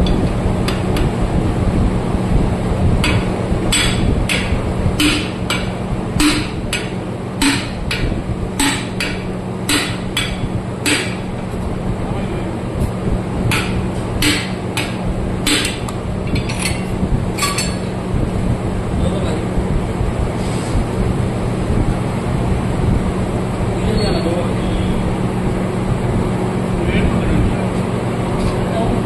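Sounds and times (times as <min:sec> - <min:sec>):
steady low hum: 0:00.0 - 0:29.0
hammer blows on steel: 0:03.0 - 0:11.2.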